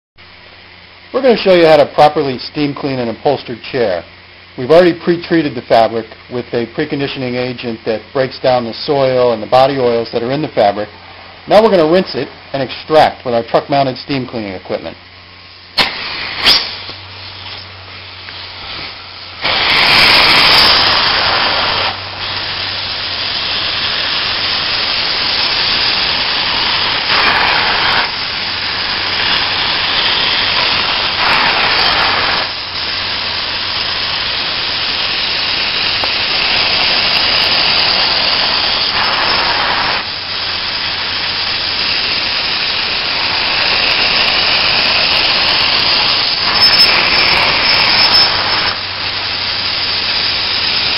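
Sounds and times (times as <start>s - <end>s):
hissing spray and suction: 15.5s - 50.9s.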